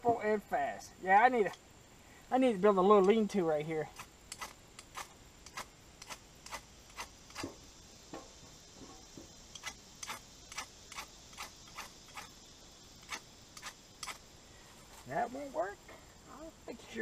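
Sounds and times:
ferro rod scraped with striker: 0:04.0 - 0:07.6, 0:09.6 - 0:12.3, 0:13.0 - 0:14.2.

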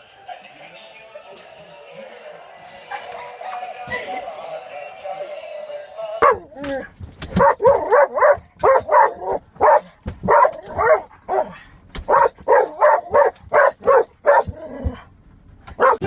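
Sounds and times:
dog barking excitedly: 0:06.2 - 0:15.1, 0:15.7 - 0:16.0.

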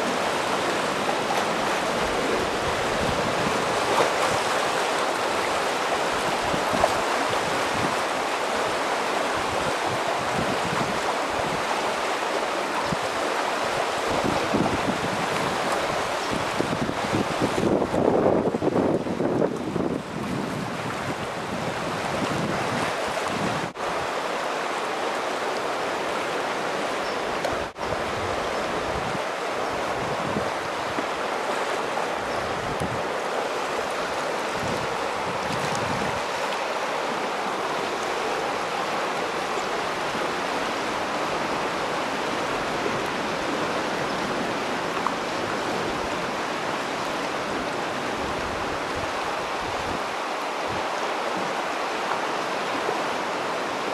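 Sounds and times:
rush of fast-moving water: 0:00.0 - 0:53.9
wind gusting on microphone: 0:09.3 - 0:12.0, 0:12.8 - 0:24.2, 0:27.3 - 0:51.9.

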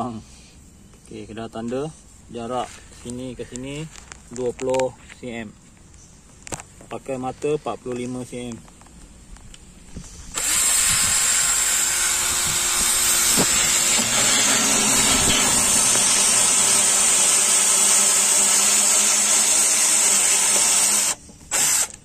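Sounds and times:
cordless drill cutting plastic pipe: 0:10.3 - 0:22.0.

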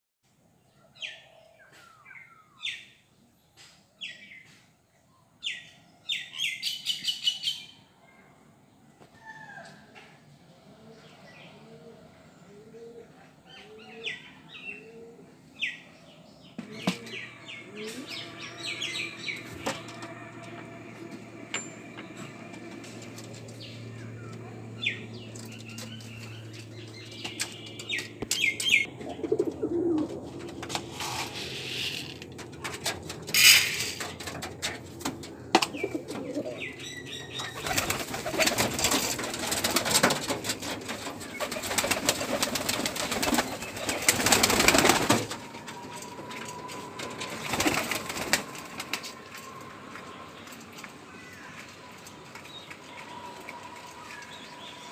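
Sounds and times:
pigeons cooing: 0:10.5 - 0:51.7
pigeon wings flapping: 0:37.5 - 0:49.6.

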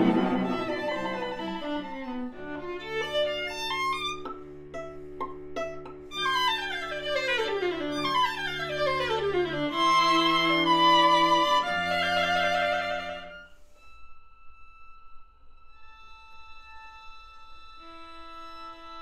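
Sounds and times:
string quartet playing: 0:00.0 - 0:13.4.

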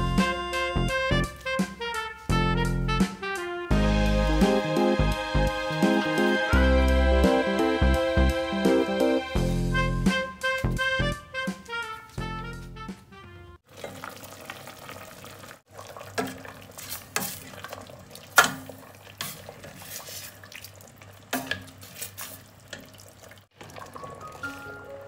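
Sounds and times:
music: 0:00.0 - 0:13.6, 0:23.8 - 0:25.0
ladle stirring stew: 0:13.7 - 0:25.0.

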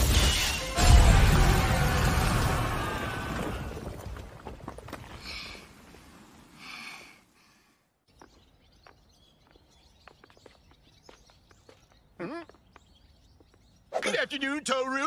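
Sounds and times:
explosion sound effect: 0:00.0 - 0:03.9
light ticking footsteps: 0:08.1 - 0:13.8.

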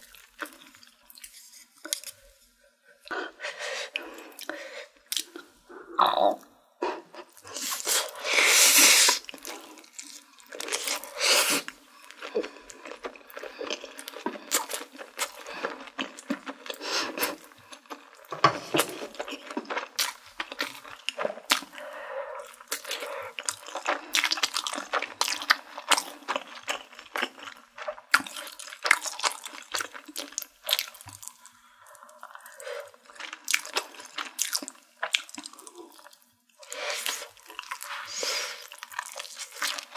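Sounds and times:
loud slurping of noodles: 0:07.5 - 0:09.3, 0:11.0 - 0:11.7
wet chewing: 0:09.0 - 0:39.9.

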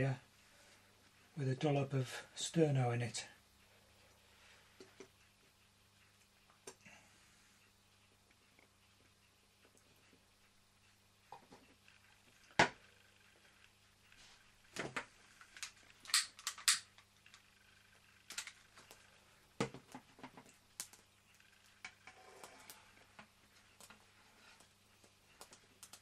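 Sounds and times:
metal objects clicking and knocking: 0:15.5 - 0:17.4, 0:18.3 - 0:18.6.

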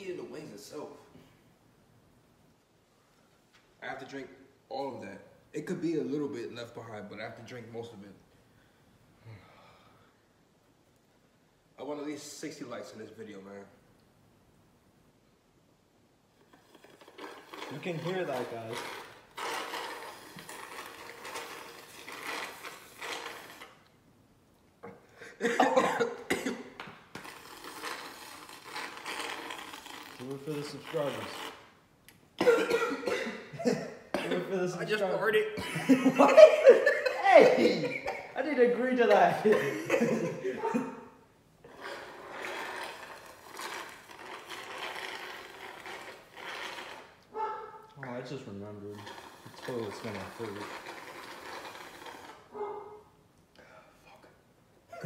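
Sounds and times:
slurping through a straw: 0:16.3 - 0:23.9, 0:25.8 - 0:31.8, 0:41.6 - 0:47.3, 0:48.6 - 0:52.6
loud cough: 0:25.3 - 0:26.8, 0:32.4 - 0:34.6, 0:39.4 - 0:41.1.

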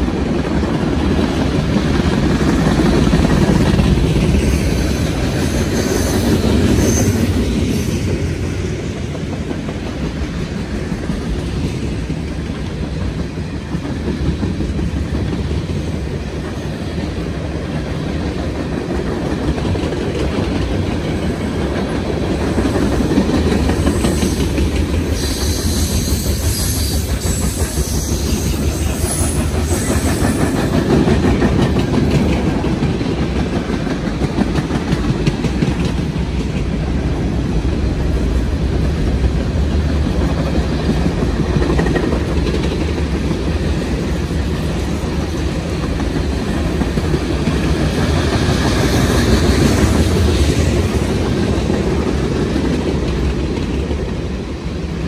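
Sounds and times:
freight cars rumbling on rails: 0:00.0 - 0:55.0
wheels clickety-clack on rail joints: 0:00.0 - 0:55.0
high metallic wheel squeal: 0:04.6 - 0:08.0.

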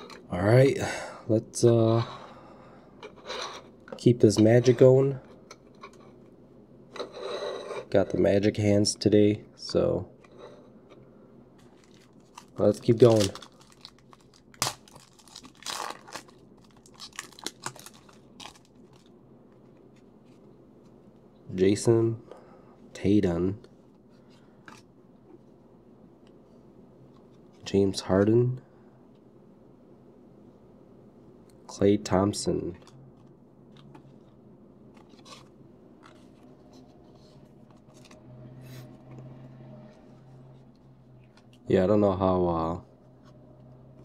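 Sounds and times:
low steady hum: 0:00.0 - 0:44.0
foil wrapper crinkling: 0:11.7 - 0:19.1.

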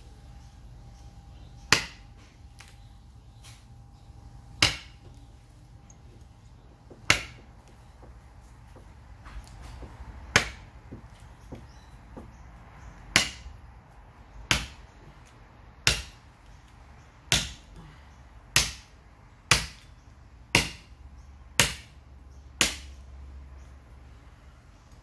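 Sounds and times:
knife chopping into wood: 0:01.7 - 0:02.0, 0:04.6 - 0:05.2, 0:06.8 - 0:08.2, 0:08.8 - 0:12.4, 0:15.8 - 0:16.2, 0:20.5 - 0:20.9.

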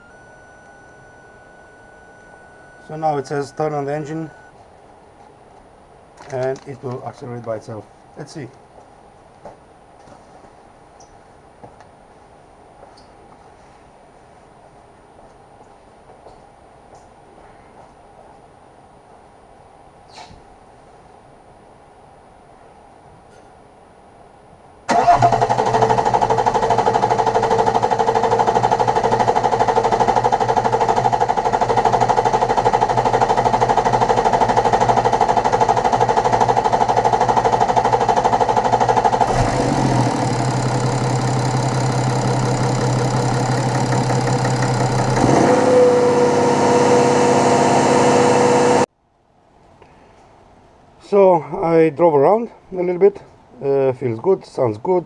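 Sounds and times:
diesel engine running: 0:00.0 - 0:04.5, 0:24.9 - 0:48.9.

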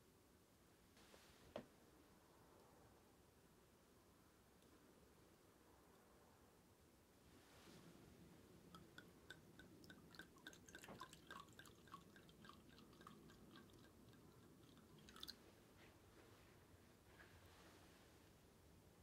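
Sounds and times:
liquid glugging from bottle: 0:08.8 - 0:15.4.

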